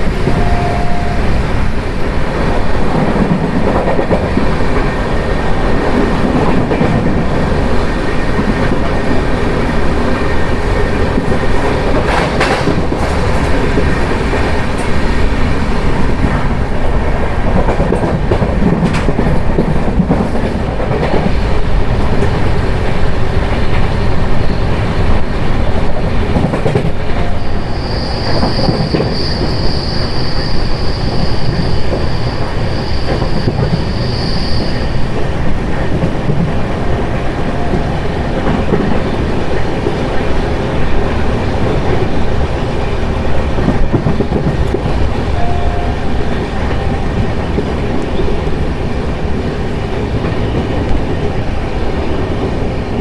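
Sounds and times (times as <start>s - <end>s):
train rumbling on track: 0.0s - 53.0s
high wheel squeal: 27.1s - 35.1s.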